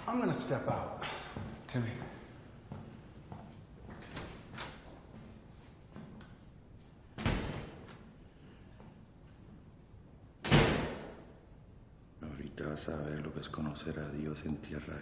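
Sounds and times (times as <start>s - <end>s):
soft footsteps: 1.3s - 7.0s.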